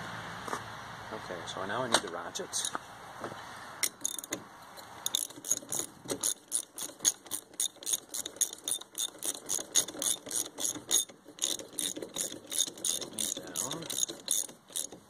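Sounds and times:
ratchet wrench clicking: 3.8s - 15.0s
tools being handled: 3.8s - 15.0s.

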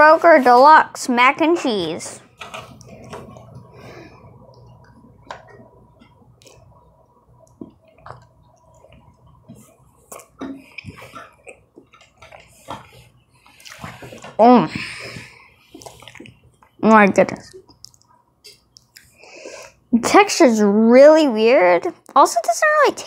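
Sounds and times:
low room hum: 0.0s - 23.0s
soft clicks and wet mouth noises: 4.5s - 12.8s, 13.4s - 14.3s, 15.7s - 16.8s, 17.4s - 19.2s
person chewing: 6.0s - 14.3s, 15.7s - 16.8s.

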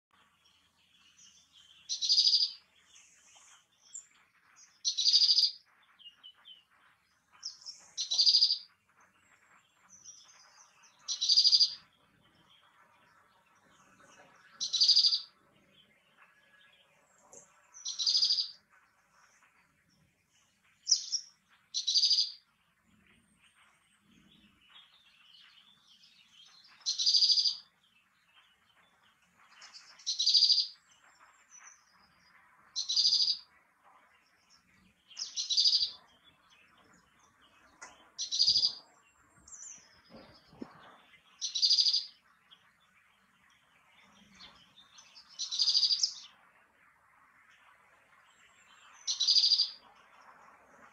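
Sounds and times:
great tit singing high phrases: 17.8s - 18.6s.

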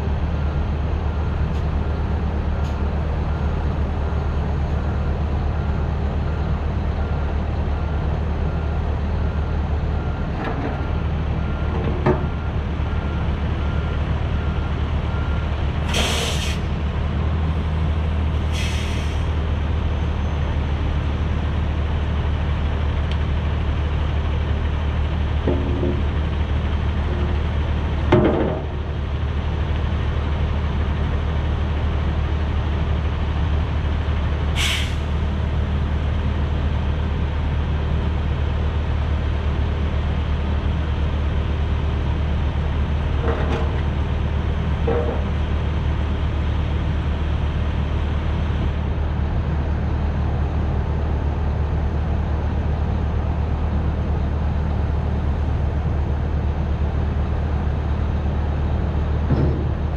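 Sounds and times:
diesel truck engine idling: 0.0s - 59.9s
air brake hiss: 15.9s - 16.7s, 18.5s - 19.3s, 34.6s - 35.1s.

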